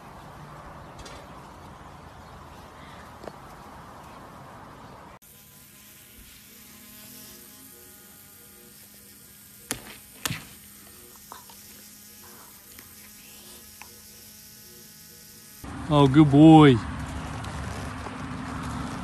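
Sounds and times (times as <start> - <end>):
electric toothbrush buzzing: 5.2 - 15.8.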